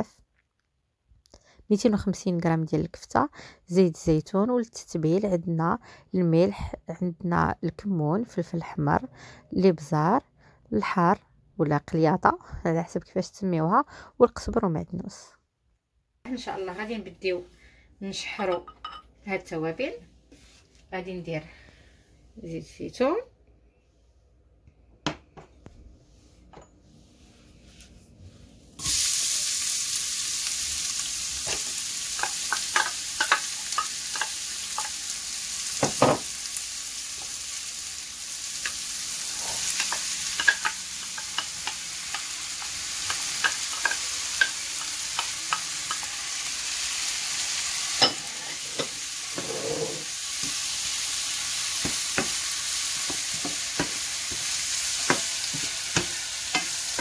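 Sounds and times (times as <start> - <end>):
vegetables sizzling in oil: 28.8 - 57.0
wooden spatula scraping pan: 48.1 - 50.1.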